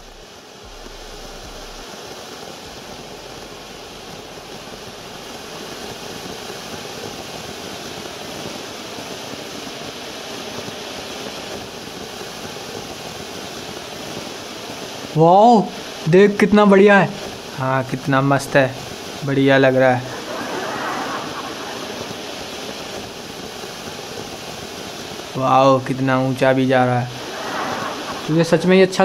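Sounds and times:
firework fountain rushing hiss: 0.0 - 29.0.

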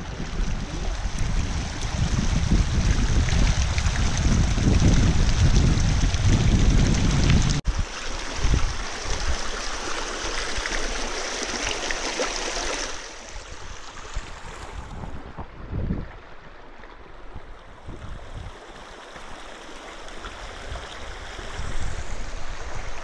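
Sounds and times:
wind rumble on microphone: 0.0 - 9.6, 13.5 - 18.8, 20.4 - 23.0
stream rushing over stones: 0.0 - 23.0.

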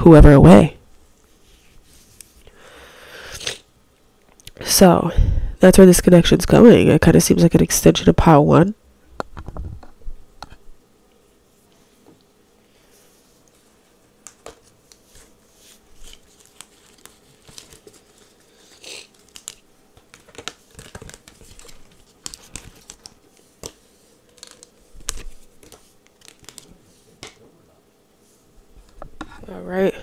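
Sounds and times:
cards snapping and swishing: 16.0 - 27.4.

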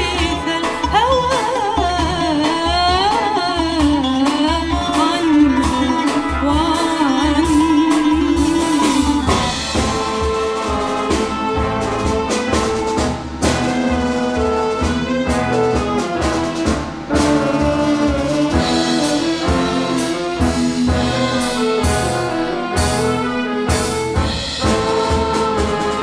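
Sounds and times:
oud: 0.0 - 9.7
band playing held chords: 0.0 - 26.0
rhythm section bass pulse: 7.4 - 26.0
ornamented gliding vocal melody: 24.6 - 26.0.

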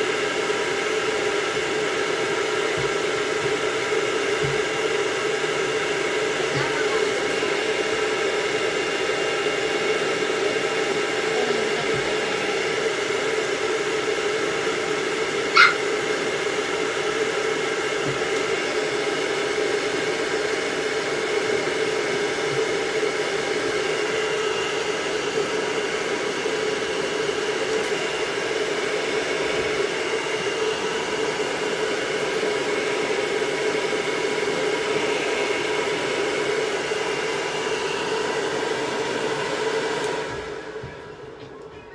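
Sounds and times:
pet dryer blowing: 0.0 - 41.9
dog yipping: 15.5 - 15.9.

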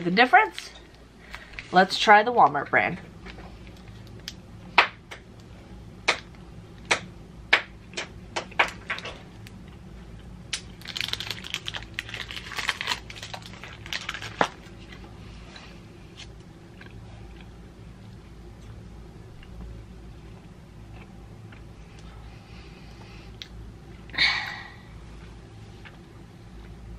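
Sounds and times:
chewing candy bar: 9.4 - 15.1, 16.2 - 18.8
wrapper crinkling: 10.5 - 15.0.

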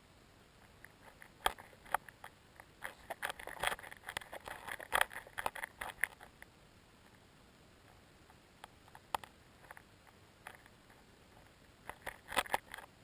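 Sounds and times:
underwater clicks and ticks: 0.6 - 6.5.

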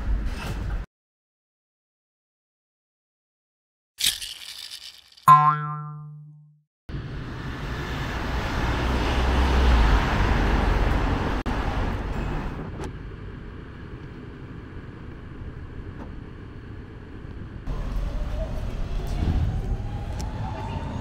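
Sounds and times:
street hum: 6.9 - 21.0
passing cars rushing: 7.0 - 12.6.

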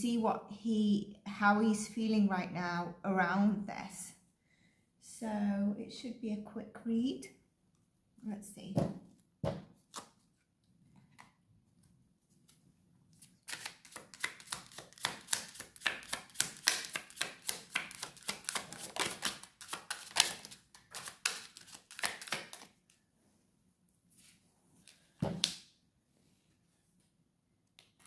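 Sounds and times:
cards being shuffled: 13.2 - 22.8.

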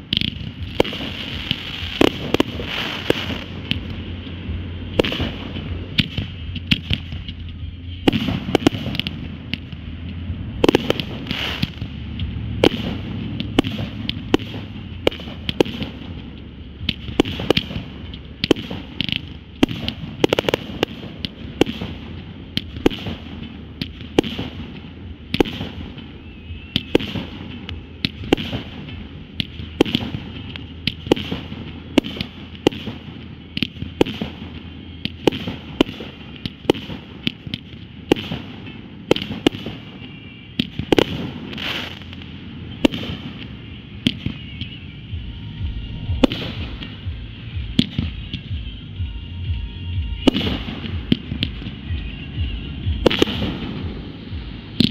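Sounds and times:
firework crackling hiss: 0.0 - 24.7, 40.8 - 45.2
firework bangs: 0.0 - 48.8, 50.0 - 54.9.

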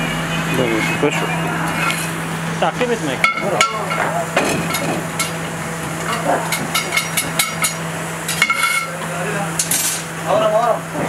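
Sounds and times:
steady low hum: 0.0 - 11.0
metal pots and skewers clinking: 3.2 - 10.0.

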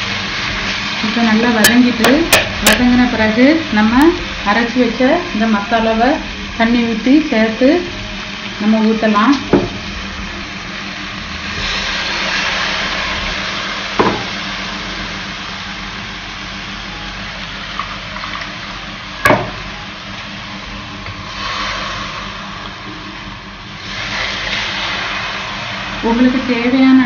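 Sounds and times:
paste sizzling in a hot pan: 0.0 - 27.0
pouring liquid: 9.8 - 15.5, 23.6 - 26.1.

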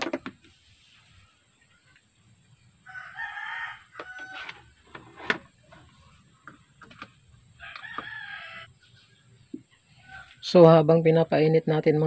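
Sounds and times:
rooster crowing: 2.8 - 4.8, 7.6 - 8.7, 10.0 - 10.4.

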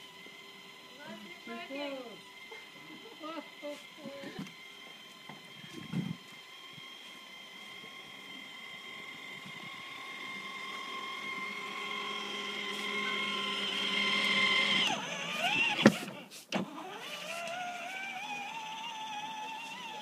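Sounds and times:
toy car motor whining: 0.0 - 20.0.

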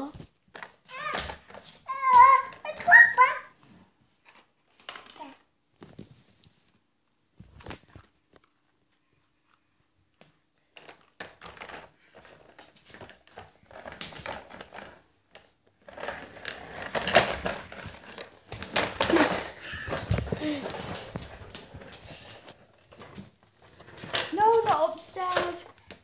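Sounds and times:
toy trolley rattling: 0.6 - 3.4, 15.8 - 25.8.

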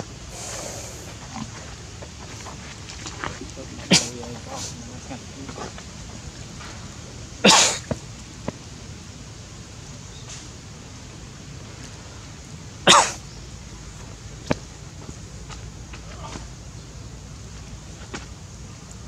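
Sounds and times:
steady background hiss: 0.0 - 19.0
sneeze-like bursts: 3.9 - 4.8, 7.4 - 7.9, 12.8 - 13.2.

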